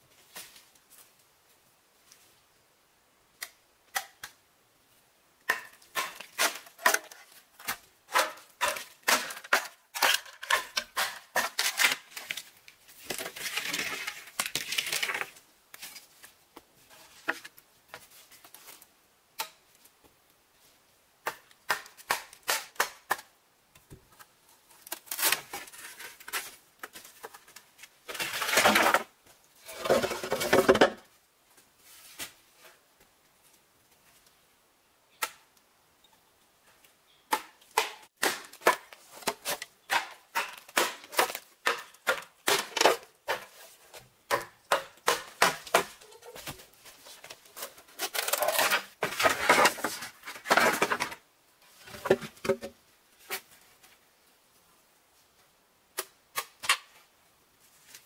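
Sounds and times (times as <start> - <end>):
bamboo scraping and rustling: 0.1 - 2.4, 5.5 - 20.8, 24.0 - 34.4, 37.8 - 54.3, 56.0 - 58.0.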